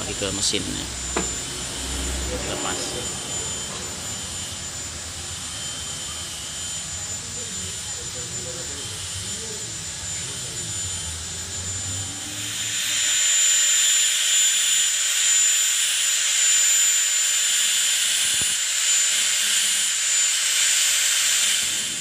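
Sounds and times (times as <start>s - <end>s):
thin high whine: 0.0s - 22.0s
low knock: 1.1s - 1.4s.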